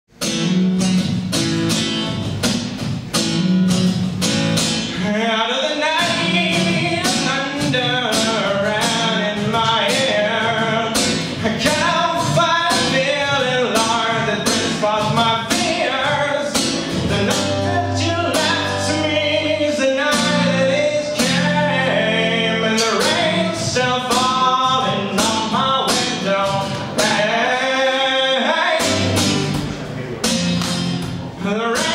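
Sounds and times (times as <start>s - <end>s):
acoustic guitar strumming: 0.1s - 31.9s
person singing: 4.9s - 29.6s, 31.3s - 31.9s.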